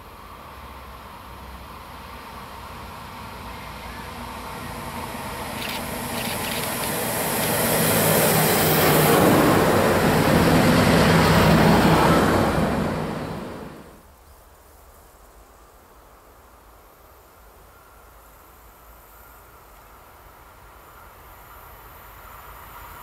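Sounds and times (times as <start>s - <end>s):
train engine drone: 0.0s - 14.0s
train wheels clattering on rails: 5.5s - 11.8s.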